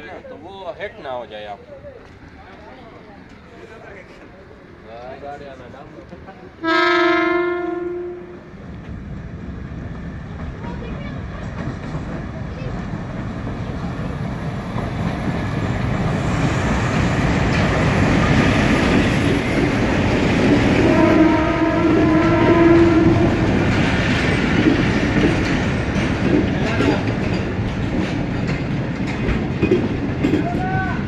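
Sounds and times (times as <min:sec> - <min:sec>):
train horn: 0:06.6 - 0:08.5, 0:20.8 - 0:23.7
train wheels clattering over rail joints: 0:09.8 - 0:31.0.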